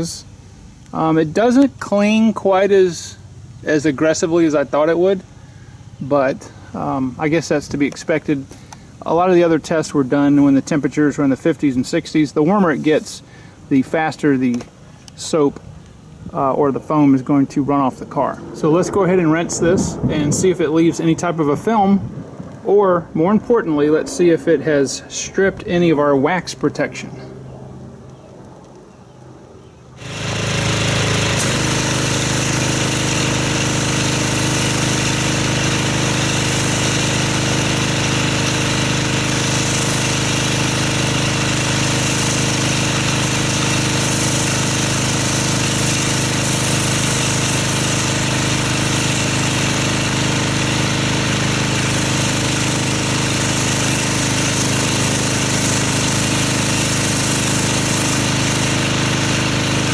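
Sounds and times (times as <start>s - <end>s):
pressure washer motor humming: 0.0s - 27.3s, 29.9s - 59.9s
water spray hissing: 30.0s - 59.9s.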